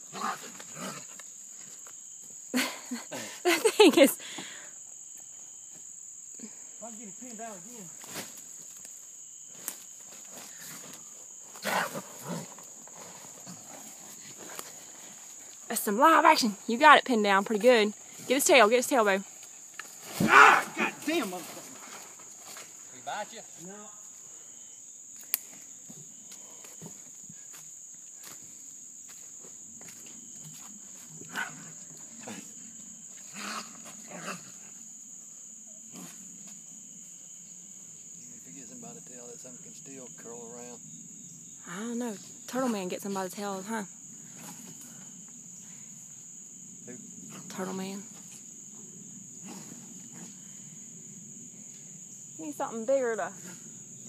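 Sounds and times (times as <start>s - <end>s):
crickets chirring: 0.0s - 54.0s
raccoon snarling: 20.3s - 21.1s, 33.3s - 34.7s.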